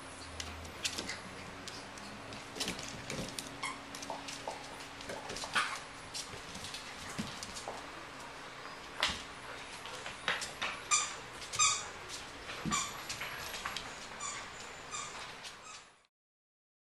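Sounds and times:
puppies yipping: 10.1s - 15.9s.

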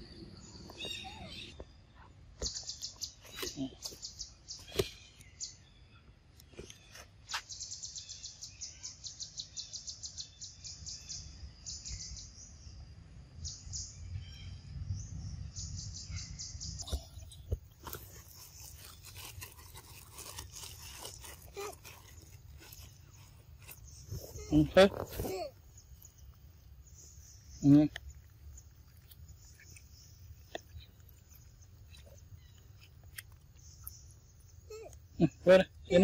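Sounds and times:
faint clicks and rustles: 16.8s - 35.2s.

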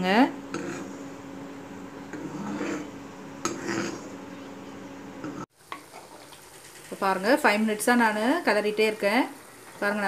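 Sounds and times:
ladle scraping a pan: 0.5s - 1.0s, 2.1s - 4.2s.

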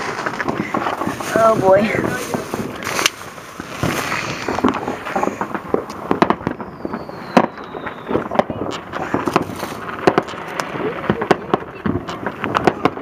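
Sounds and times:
fireworks bangs and crackling pops: 0.0s - 13.0s
faint falling whistle: 6.4s - 8.2s.

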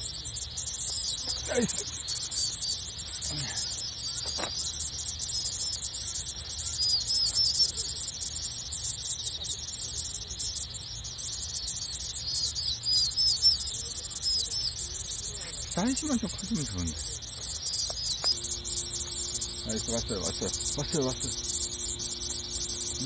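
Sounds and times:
insects buzzing: 0.0s - 23.0s
short curved chirps: 17.2s - 23.0s.

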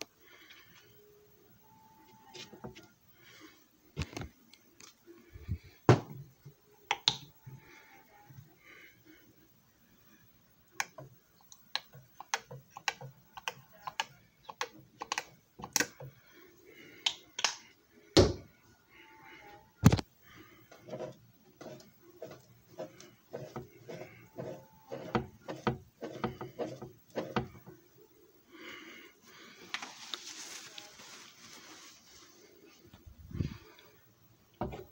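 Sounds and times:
hard plastic objects clicking: 10.8s - 16.1s.

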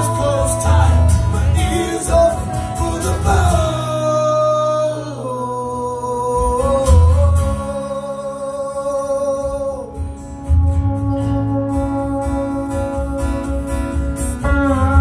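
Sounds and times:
strummed acoustic guitar: 0.0s - 15.0s
sliding held melody notes: 7.4s - 15.0s.

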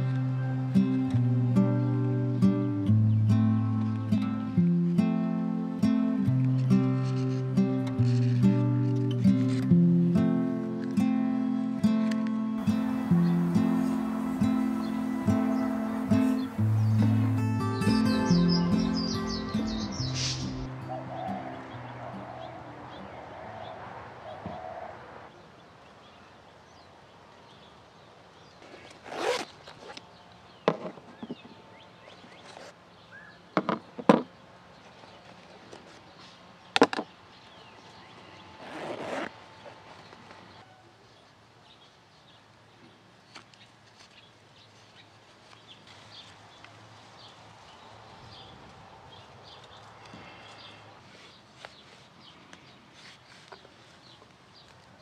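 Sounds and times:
quiet outdoor background: 0.0s - 55.0s
rustling scrapes: 38.6s - 40.6s, 51.0s - 54.2s.

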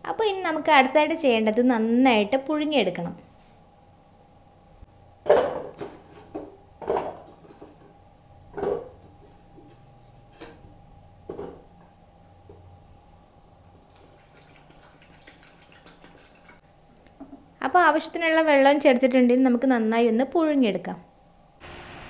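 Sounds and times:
water pouring into pot: 13.6s - 16.6s.

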